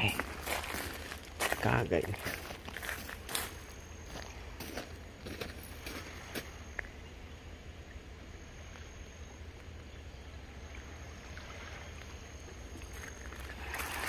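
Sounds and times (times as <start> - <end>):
water lapping on pebbles: 0.0 - 6.9, 10.8 - 14.0.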